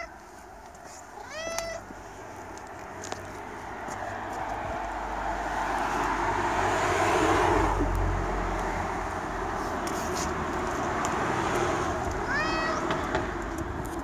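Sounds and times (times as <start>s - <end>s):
vehicle passing: 0.8s - 14.0s.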